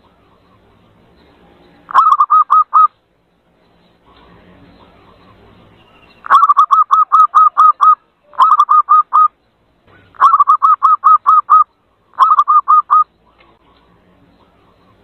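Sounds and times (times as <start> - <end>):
bird lure call notes: 1.9 - 3.0, 5.2 - 13.1.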